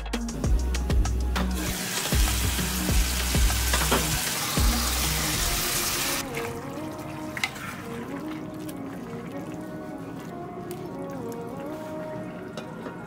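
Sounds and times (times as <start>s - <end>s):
background music: 0.0s - 13.0s
lentils sizzling in a pan: 1.6s - 6.2s.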